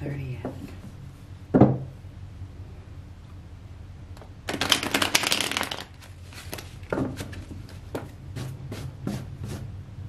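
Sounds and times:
cards being shuffled: 4.5 - 7.9.

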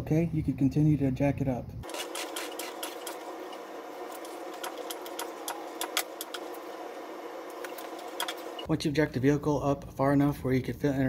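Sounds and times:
steady machine hum: 1.8 - 8.7.

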